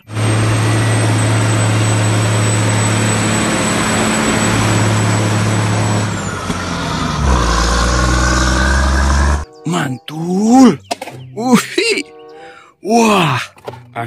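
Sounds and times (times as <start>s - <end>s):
truck diesel engine droning: 0.0s - 14.0s.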